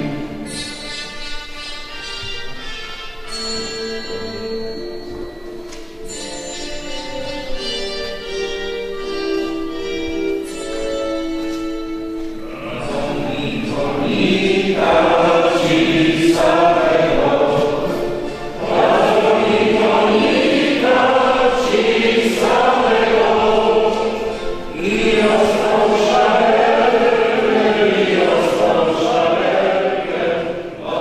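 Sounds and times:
congregation singing a hymn: 0.0s - 1.2s, 12.4s - 31.0s
held instrumental notes: 0.0s - 31.0s.

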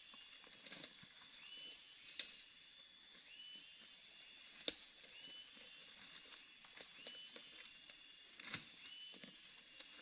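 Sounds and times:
steady high whine: 0.0s - 10.0s
twigs snapping: 4.6s - 5.0s.

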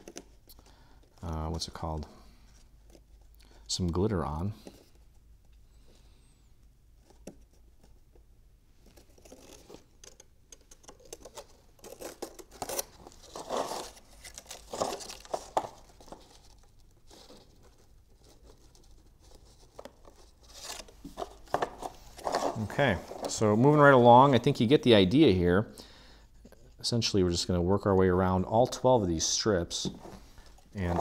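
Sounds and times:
paper strips rustling: 8.8s - 24.4s.

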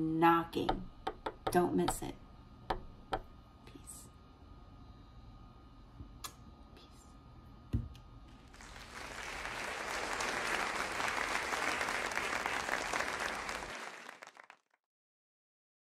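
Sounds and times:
applause: 8.4s - 14.8s.

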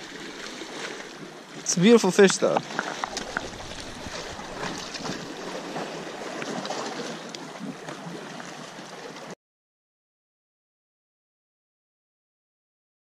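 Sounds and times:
sea waves splashing against rocks: 0.0s - 9.3s.

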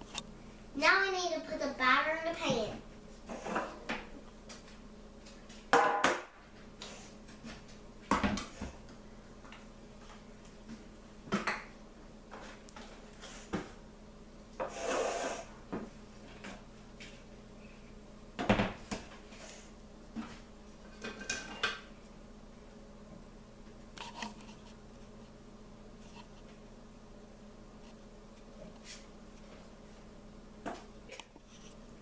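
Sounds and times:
kitchen items knocking on wood: 5.7s - 6.3s.

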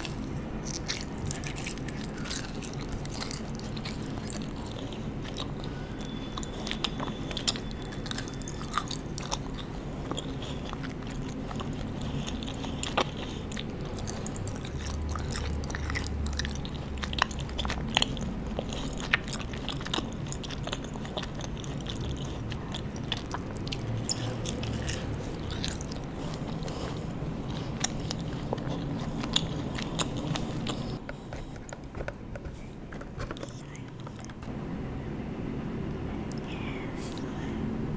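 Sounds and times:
close chewing of gummy candy: 0.0s - 34.5s.

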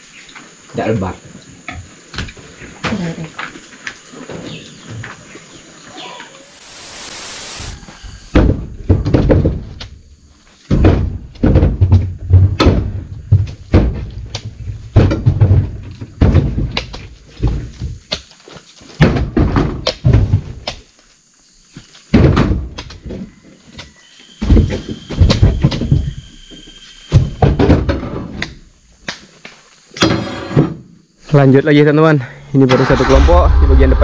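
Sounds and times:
brief hiss: 6.3s - 7.8s, 32.7s - 34.0s.

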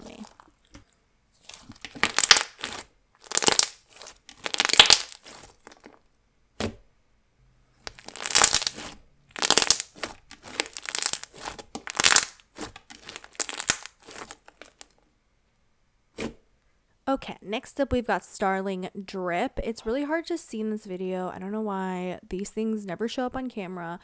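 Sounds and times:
slime popping and squelching: 0.0s - 6.0s, 7.8s - 14.9s.

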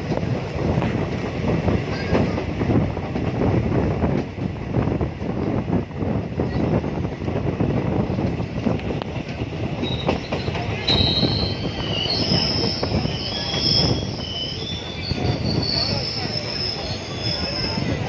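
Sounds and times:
train wheels rumbling on rails: 0.0s - 18.0s
high-pitched wheel squeal: 9.8s - 18.0s.

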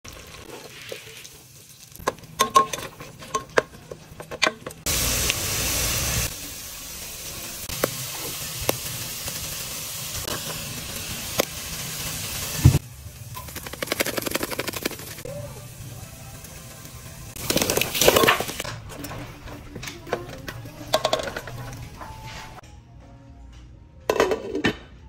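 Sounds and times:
food sizzling in hot oil: 0.1s - 3.6s, 4.8s - 18.6s.

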